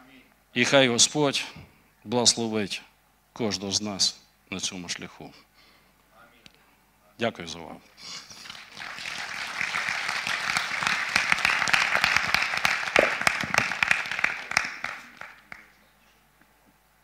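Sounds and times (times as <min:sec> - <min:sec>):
audience applauding: 0:08.3 - 0:15.8.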